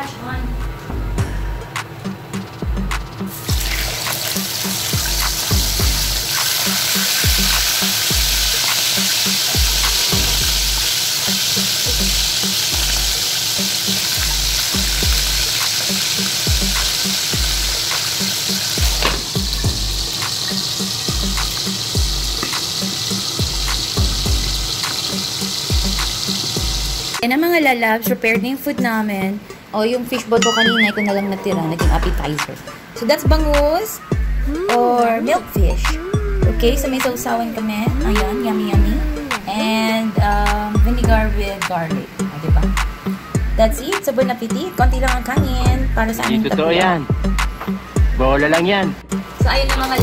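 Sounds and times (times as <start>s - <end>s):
fish sizzling in hot oil: 3.3s - 27.2s
glass lid click: 19.0s - 19.3s.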